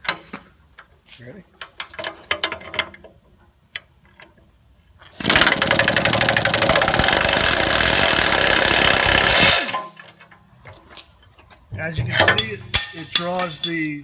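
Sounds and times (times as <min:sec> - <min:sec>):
air impact wrench hammering: 0:05.2 - 0:10.0, 0:12.2 - 0:13.9.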